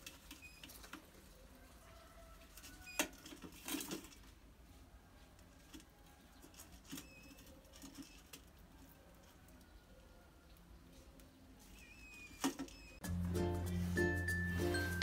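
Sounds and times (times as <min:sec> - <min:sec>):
rat squeaking: 0:00.3 - 0:01.0, 0:06.5 - 0:08.4, 0:11.6 - 0:13.0.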